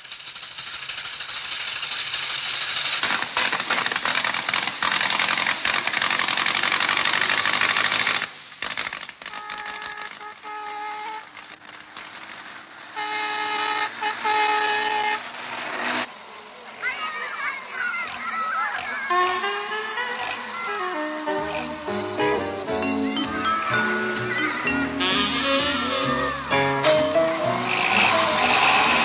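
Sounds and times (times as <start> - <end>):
dense rattling hiss: 0.0 - 13.1
music with held notes: 19.2 - 29.0.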